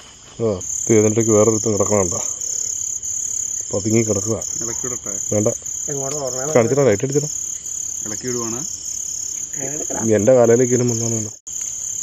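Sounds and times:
crickets chirping: 0.0s - 12.0s
men talking: 0.4s - 2.4s, 3.7s - 7.4s, 8.0s - 8.8s, 9.5s - 11.4s.

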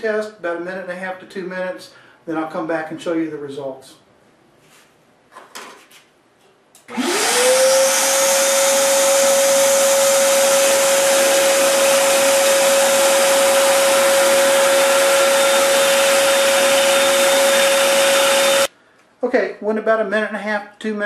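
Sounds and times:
shop vac motor whine: 6.8s - 18.7s.

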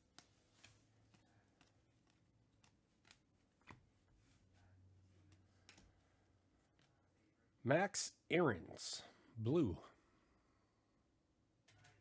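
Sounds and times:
trading cards being flipped: 0.0s - 3.9s.

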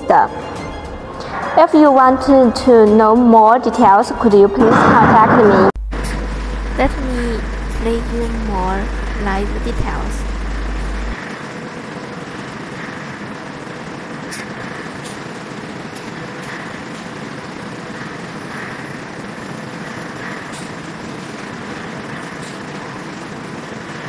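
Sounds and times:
conveyor machinery running: 1.2s - 24.0s
faint steady hum: 3.7s - 11.2s.

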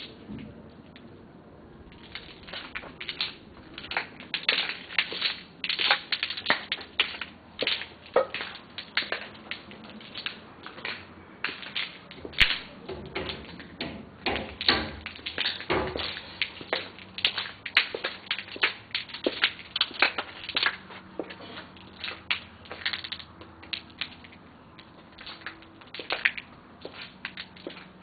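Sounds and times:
sharp taps and knocks: 2.5s - 21.4s.

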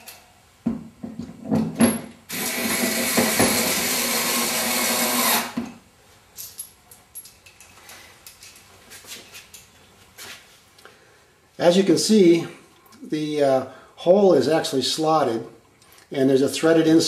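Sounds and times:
electric screwdriver driving a screw: 2.3s - 5.6s.

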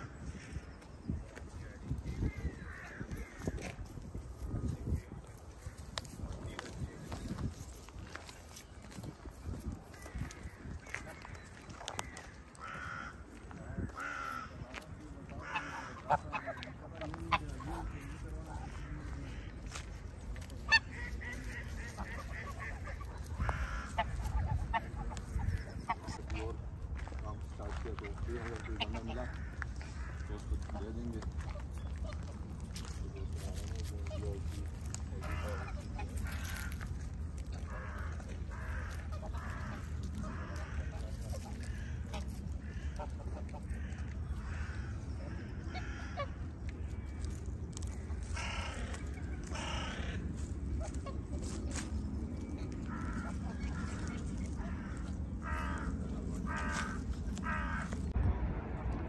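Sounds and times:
waterfowl calling: 5.5s - 58.2s
low rumble: 17.8s - 59.0s.

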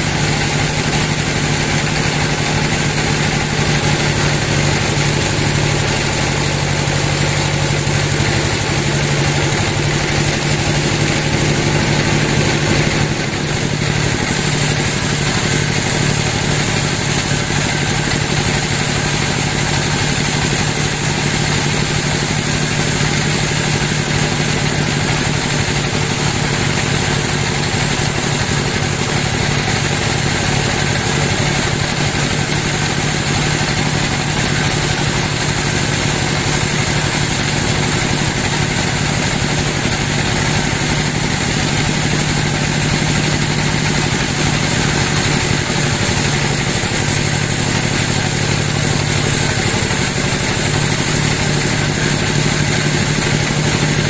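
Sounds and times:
band sawmill cutting log: 0.0s - 54.0s.

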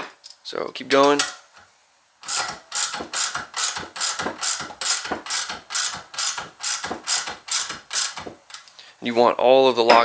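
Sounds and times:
hand ratchet clicking: 2.2s - 8.6s.

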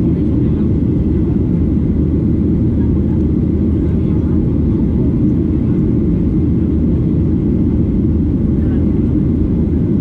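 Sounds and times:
airplane cabin engine rumble: 0.0s - 10.0s.

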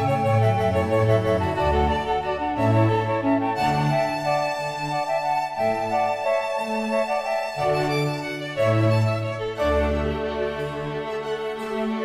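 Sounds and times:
slow music with held notes: 0.0s - 12.0s.

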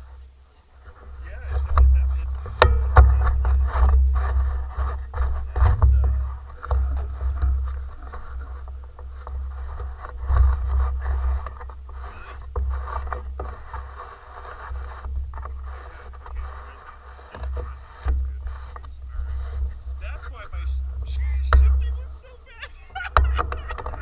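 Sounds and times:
scraping and knocking: 0.8s - 24.0s.

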